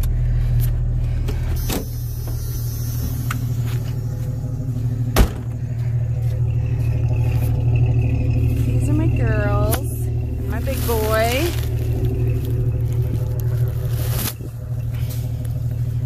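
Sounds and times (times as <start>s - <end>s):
engine idling: 0.0s - 16.0s.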